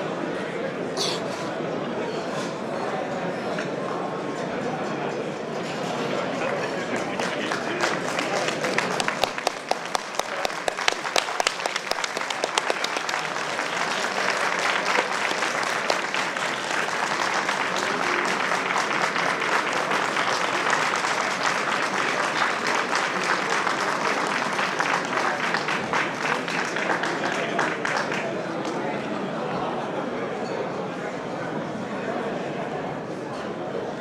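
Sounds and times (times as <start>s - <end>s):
audience applauding: 6.4s - 28.4s.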